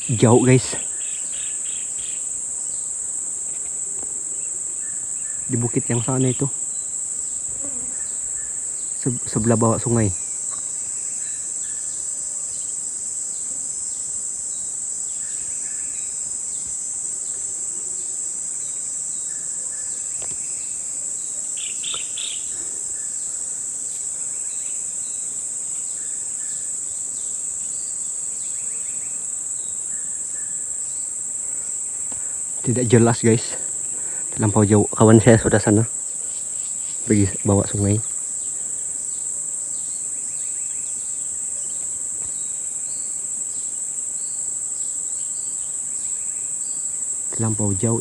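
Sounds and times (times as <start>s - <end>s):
insects droning: 0.0s - 48.0s.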